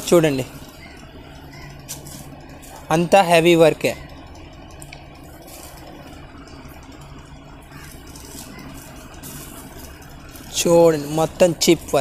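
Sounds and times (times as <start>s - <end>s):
low background hum: 0.0s - 12.0s
fabric rustling: 1.7s - 3.1s.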